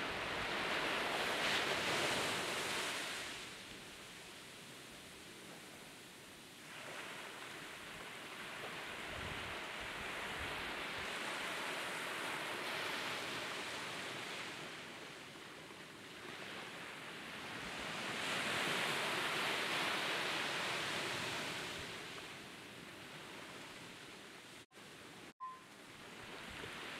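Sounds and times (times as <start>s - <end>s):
small waves breaking on sand: 0.0s - 26.9s.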